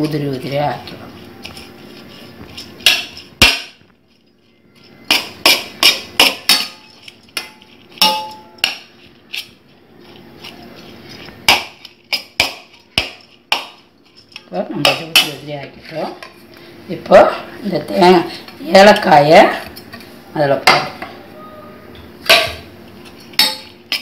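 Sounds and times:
spoon clinking against metal bowl: 0:05.0 - 0:09.4.

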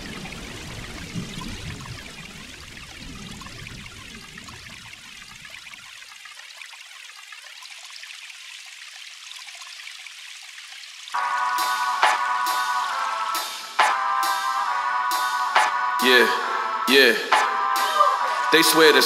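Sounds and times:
running water hiss: 0:00.0 - 0:16.2
music with keyboard tones: 0:11.2 - 0:19.0.

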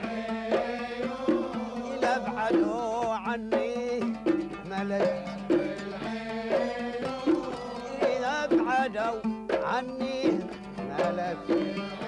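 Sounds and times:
hand drums beat: 0:00.0 - 0:12.0
oud and violin melody: 0:10.1 - 0:12.0.

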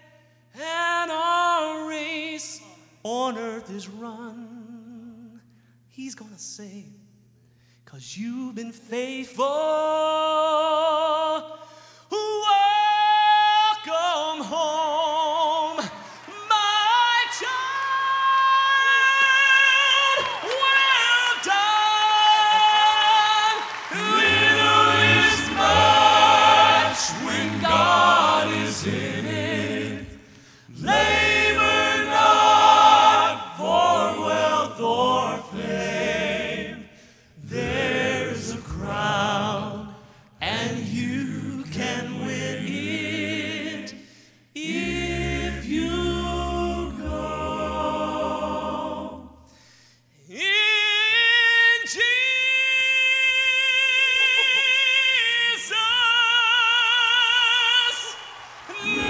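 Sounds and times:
male quartet singing in harmony: 0:12.3 - 0:49.5, 0:50.4 - 0:59.0.

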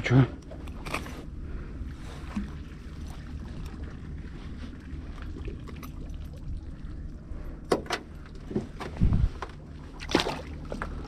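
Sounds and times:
low steady drone: 0:00.0 - 0:11.0
knocks and clatters in a boat: 0:07.6 - 0:11.0.

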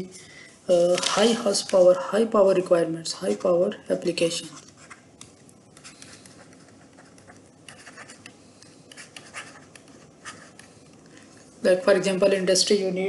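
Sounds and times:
stylus scratching on tablet screen: 0:04.2 - 0:11.0.

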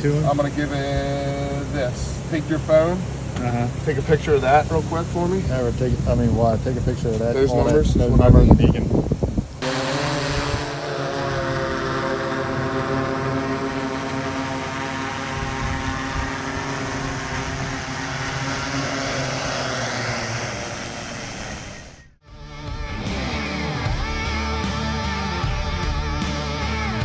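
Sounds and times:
drone propellers buzzing: 0:09.2 - 0:27.0.

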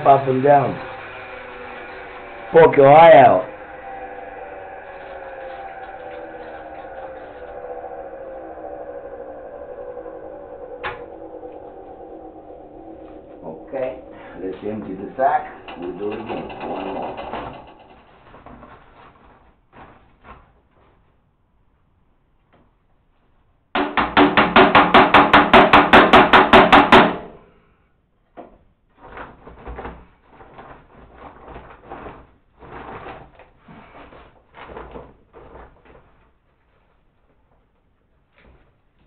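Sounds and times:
rustling and clatter: 0:15.6 - 0:21.3, 0:28.4 - 0:39.0
rapid knocking on metal housing: 0:23.8 - 0:27.3.

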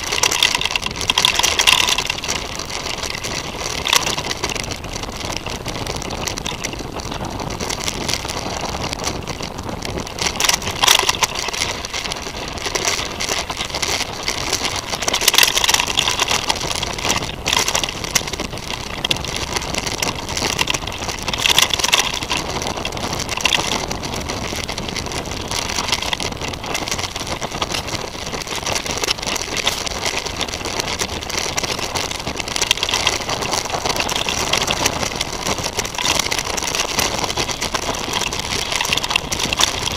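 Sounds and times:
bike rattles and knocks: 0:00.0 - 0:39.9
rushing tyres and air: 0:00.0 - 0:39.9.

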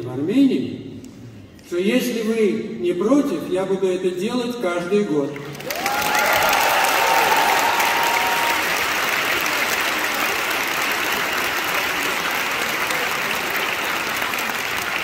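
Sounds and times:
audience applauding: 0:05.4 - 0:15.0.

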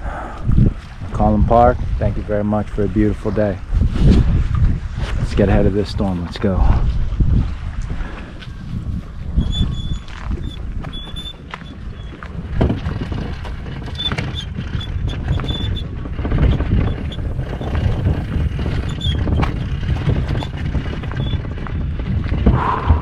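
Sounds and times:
wind buffeting microphone: 0:00.0 - 0:23.0
short high squeaks: 0:09.4 - 0:12.2, 0:16.5 - 0:21.5.

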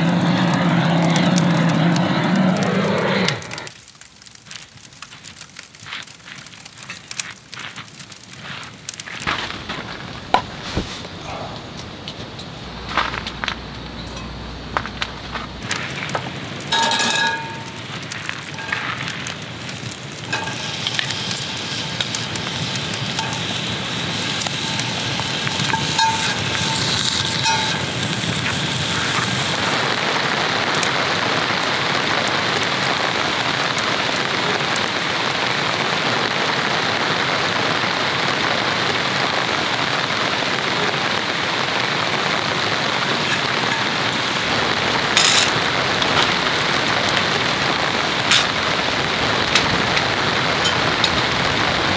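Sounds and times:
rain hissing on shelter: 0:00.0 - 0:51.9
wood fire crackling: 0:00.0 - 0:51.9
steel cup clinking: 0:16.7 - 0:17.8.

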